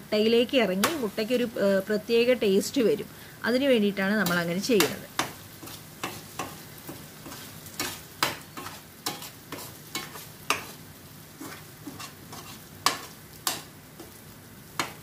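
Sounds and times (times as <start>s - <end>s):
masala sizzling: 0.0s - 15.0s
spoon scraping and knocking in pan: 4.2s - 14.2s, 14.8s - 15.0s.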